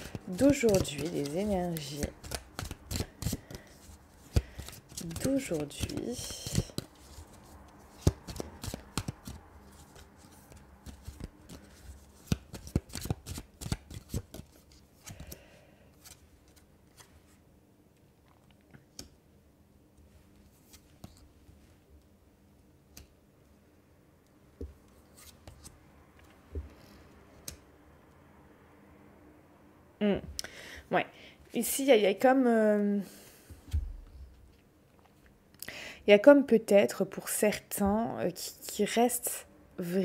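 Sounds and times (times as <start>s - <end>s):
cards shuffling with crisp clicks: 0.0s - 15.4s.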